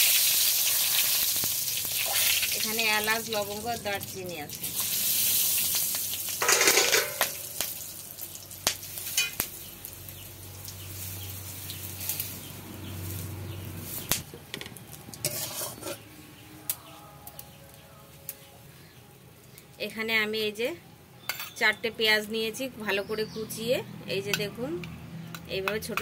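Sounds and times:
spices sizzling in hot oil: 0.0s - 14.3s, 15.0s - 16.0s.

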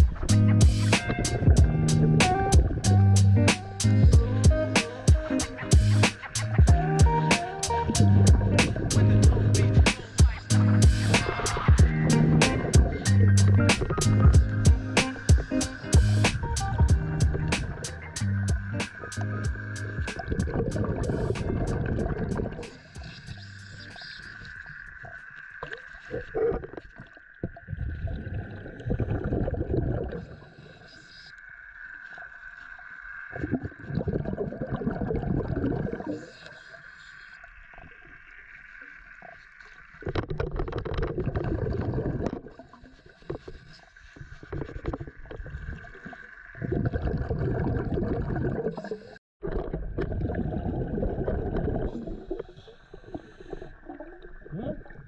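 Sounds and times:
high-pitched hum: 0.0s - 24.0s
regulator exhaust bubbles: 0.0s - 30.4s, 33.3s - 36.3s, 39.9s - 43.6s, 44.2s - 55.0s
diver inhaling through regulator: 51.9s - 54.0s.

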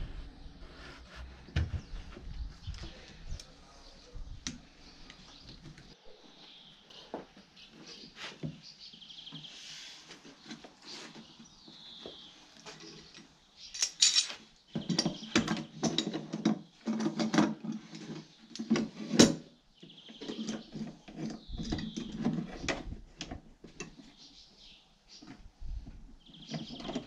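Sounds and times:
metal clamps clattering: 13.8s - 17.8s.

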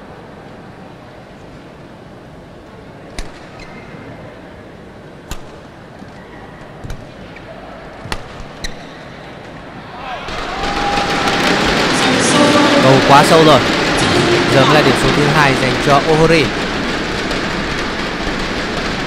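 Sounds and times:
shoe squeaks on court: 3.5s - 4.0s.

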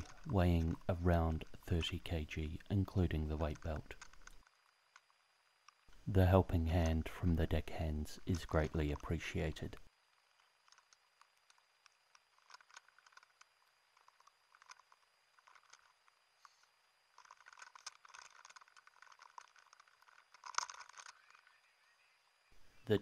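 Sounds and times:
rustling: 0.0s - 6.1s, 9.8s - 21.6s.

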